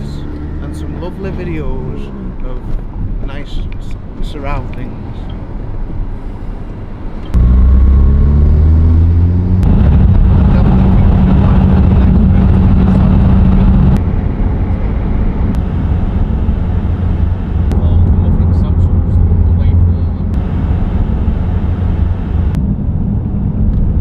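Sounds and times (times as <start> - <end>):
car engine accelerating: 7.3 - 24.0.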